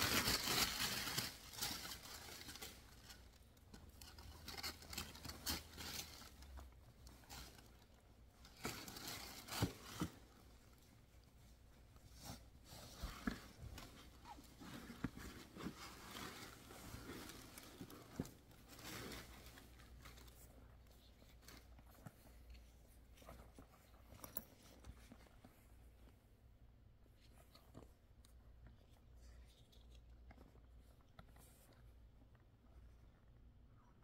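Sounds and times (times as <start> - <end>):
rustling fabric bag handling: 0.0 - 26.1.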